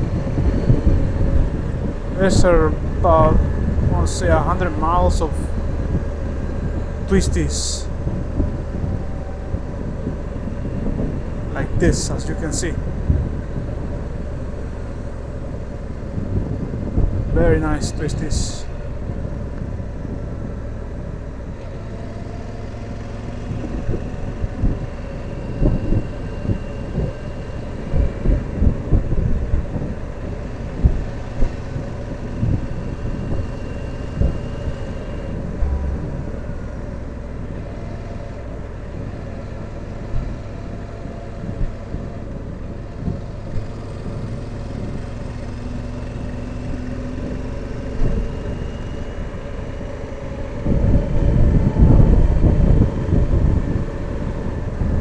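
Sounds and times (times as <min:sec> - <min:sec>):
low thumps: 0:34.1 - 0:38.6.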